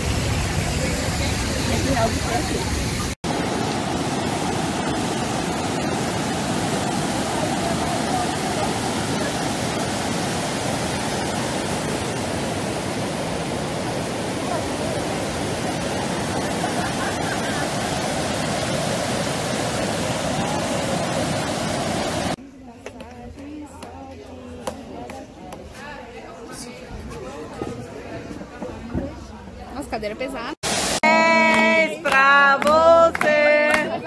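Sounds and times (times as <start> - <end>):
whitewater rushing over rocks: 0.0 - 22.4.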